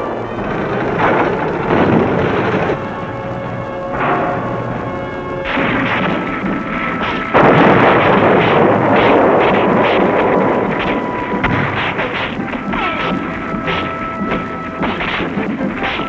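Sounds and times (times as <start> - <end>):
background music: 0.0 - 16.0
gunshots: 0.6 - 16.0
loud explosion blast: 3.8 - 15.4.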